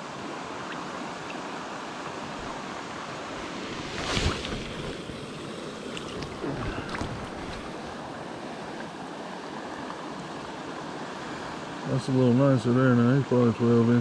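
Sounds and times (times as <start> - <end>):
stream water rushing: 0.0 - 14.0
fish splashing in water: 3.4 - 8.0.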